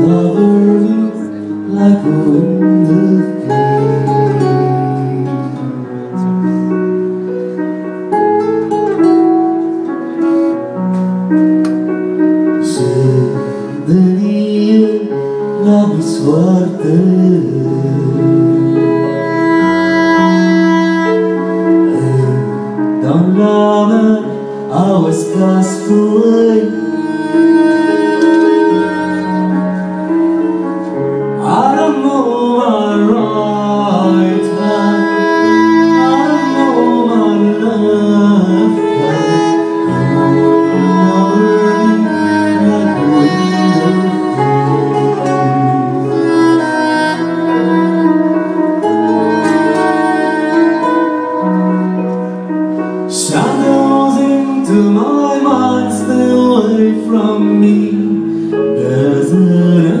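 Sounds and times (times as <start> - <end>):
melodic lead line: 0.0 - 60.0
held bass notes: 15.6 - 60.0.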